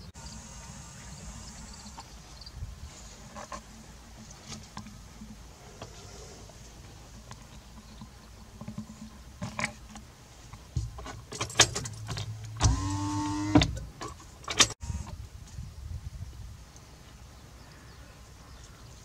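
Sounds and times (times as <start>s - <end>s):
sharp clicks and knocks: 7.1s - 15.6s
power window motor whining: 12.6s - 13.8s, 14.8s - 15.2s.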